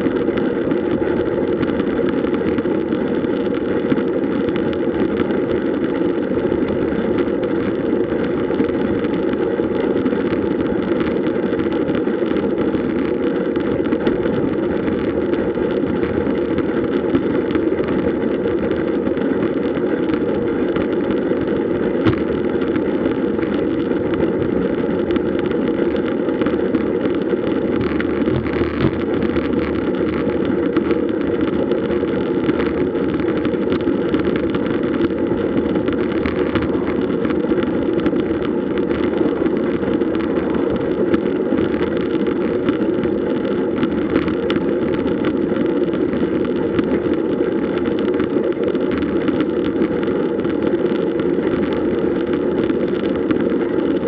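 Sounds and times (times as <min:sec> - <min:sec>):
bike tyre noise: 0:19.0 - 0:49.3
wind on microphone: 0:20.0 - 0:50.7.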